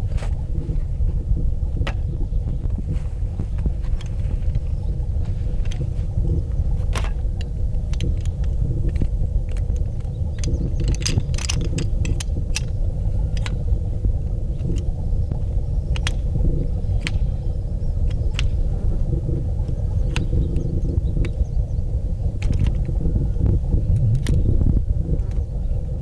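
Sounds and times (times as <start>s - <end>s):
steady low rumble: 0.0s - 26.0s
sharp clicks: 6.8s - 13.6s, 14.6s - 16.3s, 16.9s - 17.4s, 18.0s - 18.6s, 22.4s - 23.0s.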